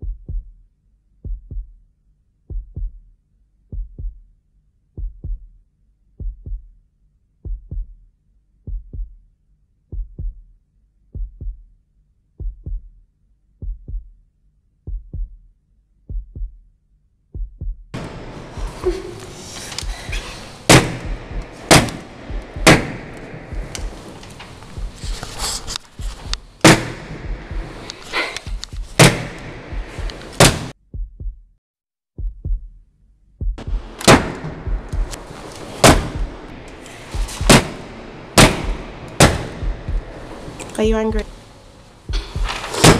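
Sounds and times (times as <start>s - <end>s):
slow heartbeat thumps: 0.0s - 1.8s, 2.4s - 3.1s, 3.7s - 4.3s, 4.9s - 5.6s, 6.2s - 6.8s, 7.4s - 11.8s, 12.4s - 13.0s, 13.6s - 14.2s, 14.8s - 16.7s, 17.3s - 31.6s, 32.2s - 42.9s
loud sharp bangs: 18.0s - 25.4s, 26.1s - 30.7s, 33.6s - 40.6s
low rumble: 18.0s - 30.7s, 33.5s - 42.6s.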